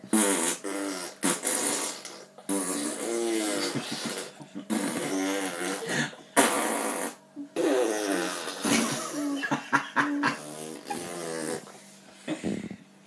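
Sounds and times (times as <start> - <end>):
blowing raspberries: 0.1 - 9.2.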